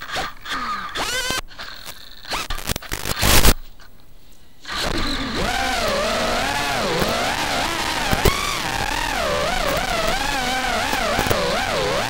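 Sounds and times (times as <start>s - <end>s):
drone motors whining: 4.7s - 12.0s.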